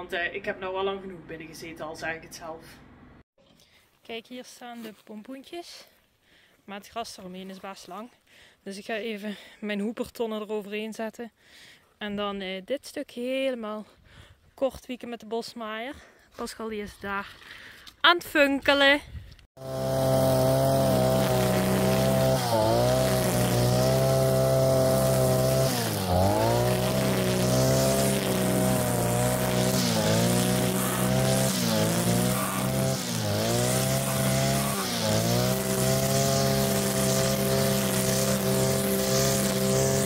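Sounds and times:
brush cutter engine running: 19.6 - 40.0.

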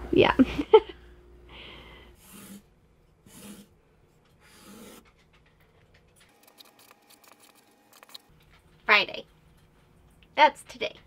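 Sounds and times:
marker scratching on paper: 2.2 - 3.7, 4.4 - 5.2.

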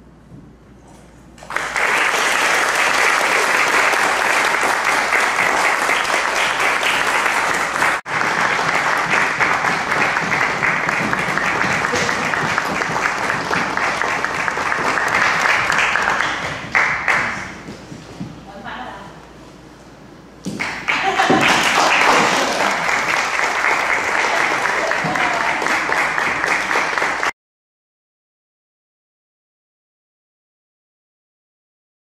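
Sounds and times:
audience applause: 1.4 - 17.5, 20.6 - 27.3.

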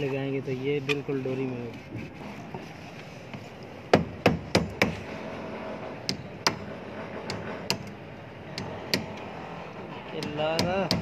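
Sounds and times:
hammer hitting nail into wood: 3.9 - 5.0, 7.3 - 7.9, 10.2 - 11.0.

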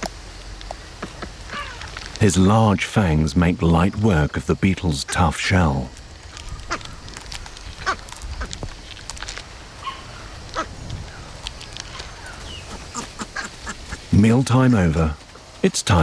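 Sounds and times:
monkey crunching beetle shell: 5.9 - 13.7.

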